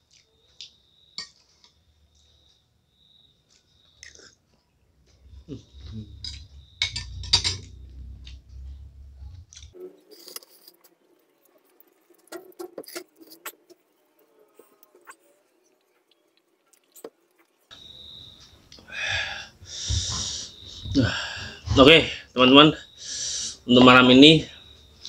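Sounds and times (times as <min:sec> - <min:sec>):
low rumble: 0:05.3 - 0:09.7.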